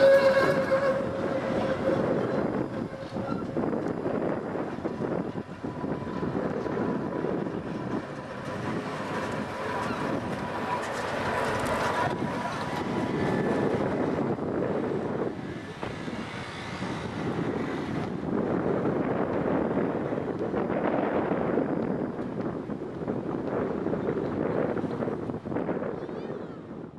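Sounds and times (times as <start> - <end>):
high whine: 0.0 - 16.4
tram wheels rumbling on rails: 0.0 - 26.9
wind noise on microphone: 0.0 - 26.9.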